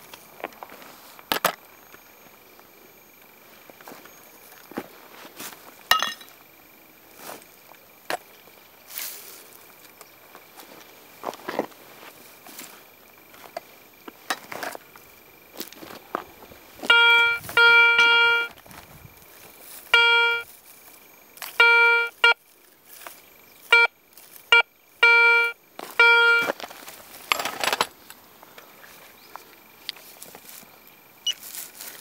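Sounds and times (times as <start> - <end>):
metal detector beeps: 16.8 - 18.6, 19.9 - 20.5, 21.4 - 22.4, 23.6 - 26.6.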